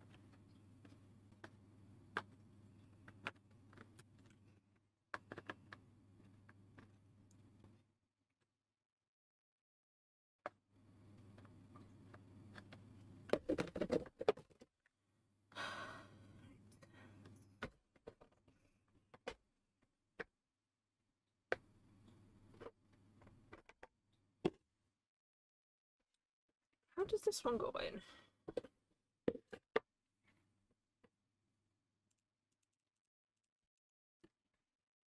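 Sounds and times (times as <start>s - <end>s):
person sighing: 15.5s - 16.3s.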